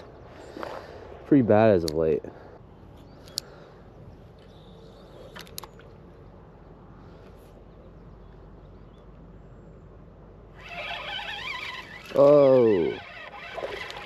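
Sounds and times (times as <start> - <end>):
fishing reel whirring: 10.6 - 14.0.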